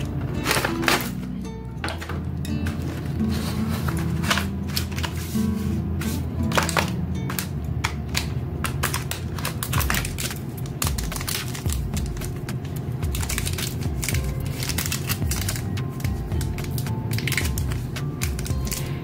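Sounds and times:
plastic wrapper crinkling: 0:06.5 - 0:19.0.

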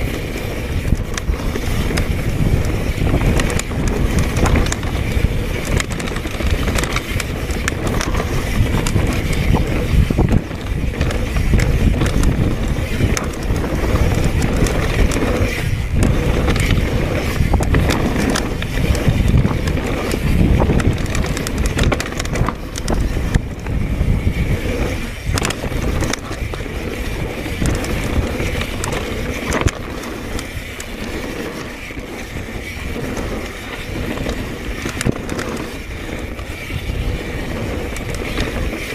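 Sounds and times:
bike rattling over bumps: 0:00.0 - 0:38.9
bike tyres on dirt and stones: 0:00.0 - 0:38.9
wind on microphone: 0:00.0 - 0:38.9.

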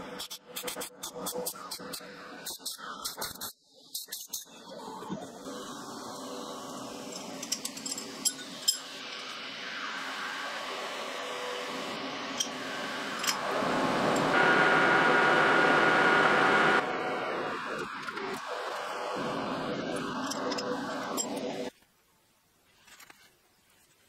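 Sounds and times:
lathe whirring hiss: 0:05.5 - 0:21.7.

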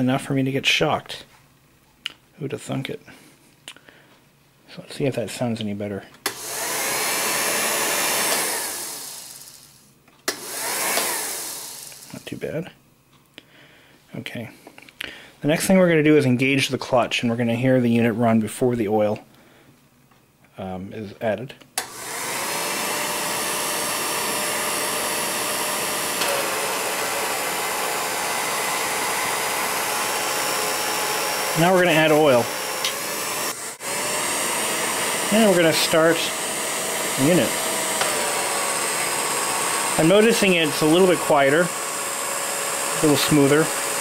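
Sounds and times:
projector motor whirring: 0:06.2 - 0:12.2, 0:21.8 - 0:44.0.

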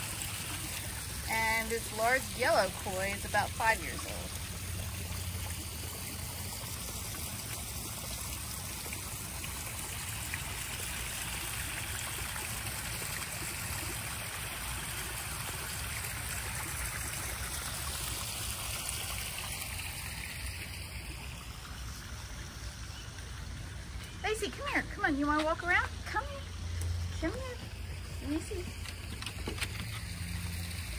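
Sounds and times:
water trickling into pond: 0:00.0 - 0:30.9.

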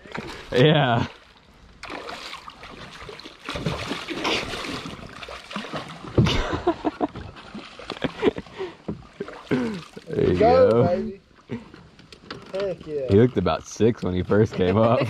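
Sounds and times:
fish splashing in water: 0:01.8 - 0:06.5.

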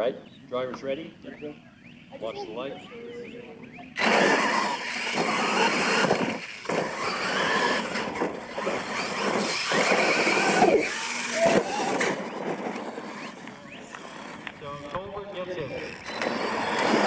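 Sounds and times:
electric motors whining: 0:03.0 - 0:17.0
tyres tearing at dirt: 0:04.0 - 0:14.6.

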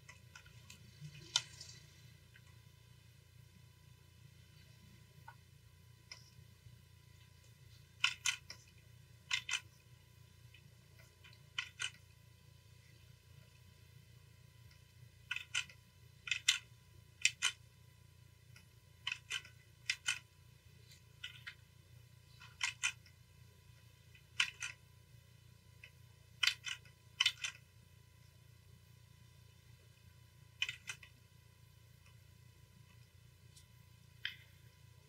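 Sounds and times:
computer mouse clicks: 0:00.0 - 0:02.6, 0:06.0 - 0:06.4, 0:07.3 - 0:12.2, 0:14.6 - 0:17.6, 0:18.5 - 0:21.6, 0:22.3 - 0:23.2, 0:23.8 - 0:24.8, 0:25.8 - 0:27.7, 0:30.5 - 0:31.2, 0:32.8 - 0:34.7
faint low hum: 0:00.0 - 0:35.0.

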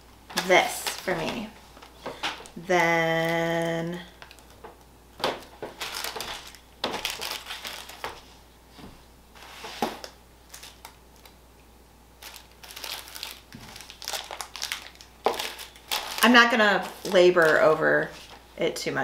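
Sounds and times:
snack wrappers crinkling: 0:00.4 - 0:08.3, 0:09.9 - 0:11.4, 0:12.2 - 0:18.4.

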